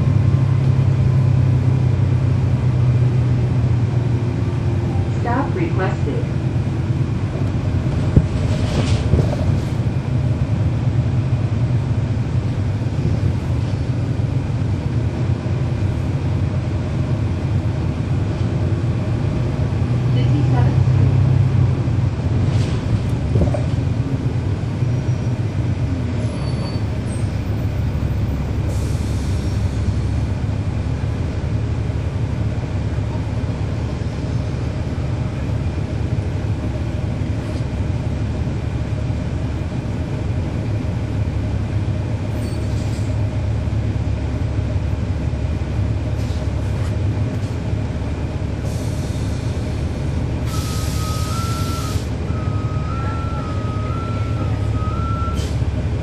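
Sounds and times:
bus diesel engine running: 0.0s - 56.0s
air hissing: 50.4s - 52.1s.

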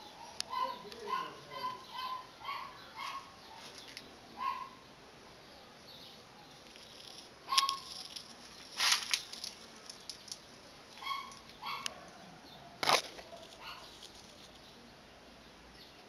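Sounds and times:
leaves and twigs rustling: 2.9s - 4.2s, 6.5s - 12.0s, 12.8s - 14.9s.

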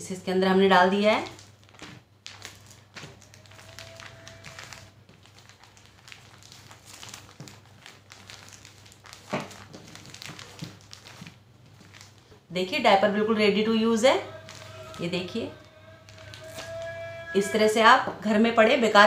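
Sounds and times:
cloth rustling and crinkling: 1.0s - 12.5s, 13.9s - 17.2s.

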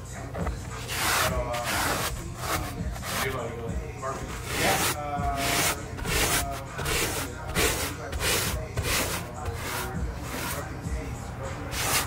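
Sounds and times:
brush scrubbing upholstery: 0.7s - 3.4s, 4.2s - 10.7s, 11.7s - 12.0s.

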